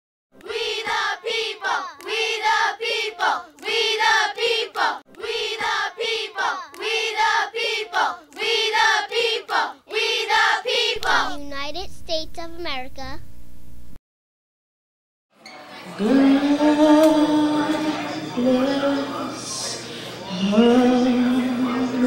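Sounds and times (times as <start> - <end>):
high voices singing together: 0.4 - 11.4, 15.8 - 22.0.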